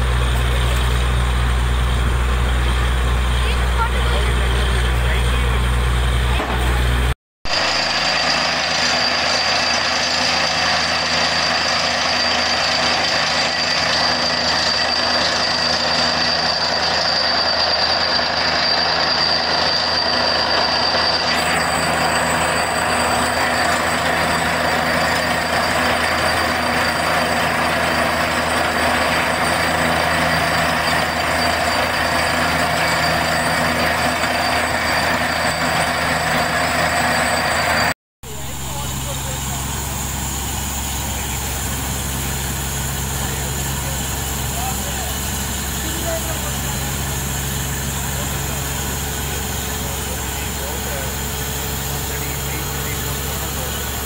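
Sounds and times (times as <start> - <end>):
drilling rig machine noise: 0.0 - 54.0
thin high whine: 7.5 - 54.0.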